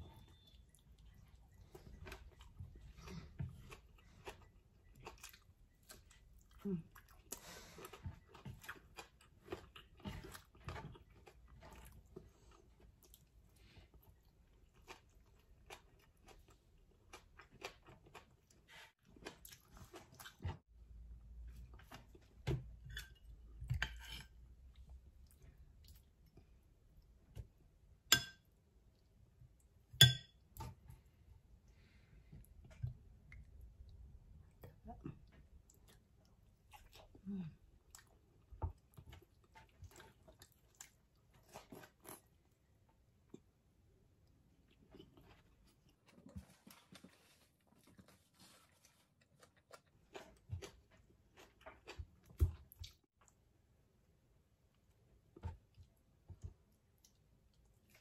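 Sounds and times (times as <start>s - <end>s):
metal spoon clinking on glass bowl: 30.0s - 30.4s.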